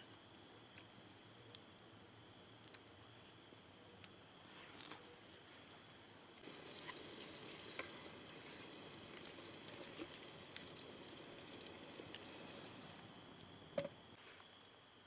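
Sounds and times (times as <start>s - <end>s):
kettle steaming hiss: 5.9s - 15.0s
campfire crackling and popping: 6.4s - 13.9s.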